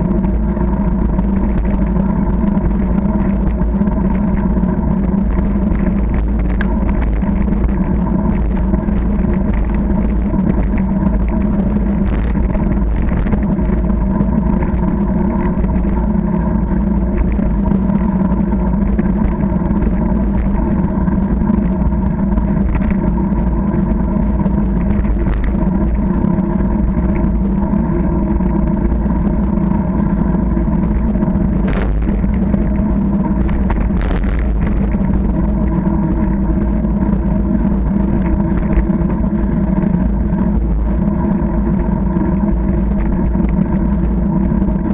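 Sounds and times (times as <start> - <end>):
bicycle rolling on tarmac: 0.0 - 44.9.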